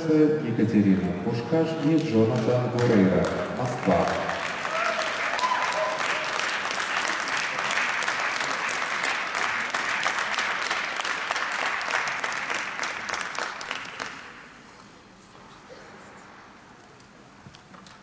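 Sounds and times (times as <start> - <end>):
audience applauding: 1.8 - 14.4.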